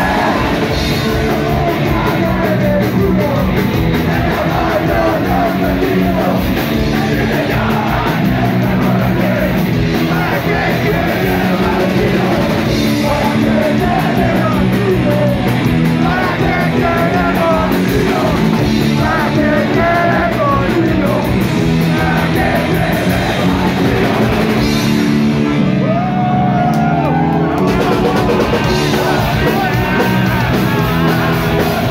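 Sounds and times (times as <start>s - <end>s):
shouted vocals: 0.0s - 15.4s, 25.8s - 31.9s
fast driving drumbeat: 0.0s - 25.6s, 27.6s - 31.9s
electric guitar and bass: 0.0s - 31.9s.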